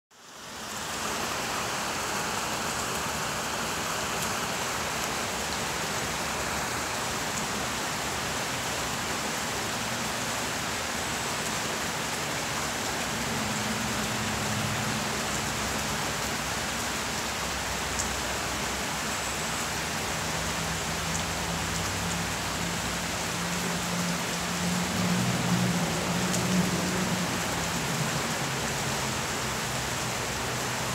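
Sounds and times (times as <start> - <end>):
rain falling on trees: 0.1 - 30.9.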